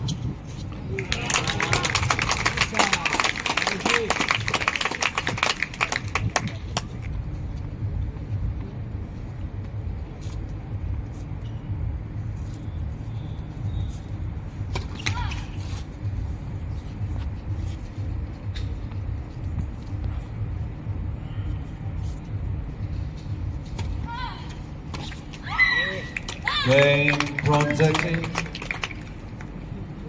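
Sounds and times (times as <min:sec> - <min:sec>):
crowd applause: 0:00.9 - 0:06.6, 0:26.8 - 0:29.1.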